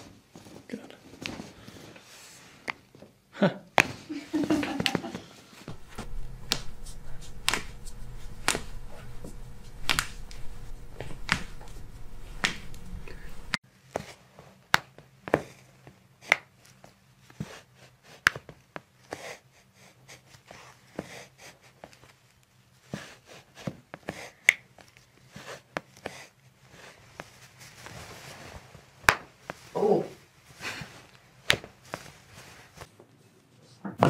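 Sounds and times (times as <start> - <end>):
low hum: 5.7 - 13.6.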